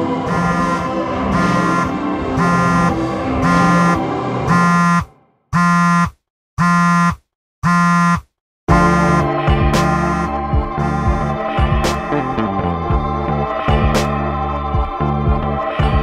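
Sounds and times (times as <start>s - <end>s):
music: 0.0s - 4.6s, 8.7s - 16.0s
phone alarm beeping: 0.3s - 8.3s, 8.9s - 11.2s.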